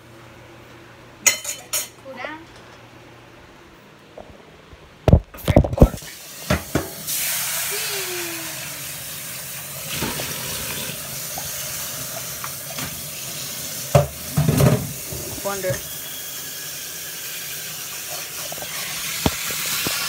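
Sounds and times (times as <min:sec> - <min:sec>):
tap running water into sink: 0:09.9 - 0:16.0, 0:17.3 - 0:20.0
frying pan clanking against sink: 0:13.9 - 0:15.1.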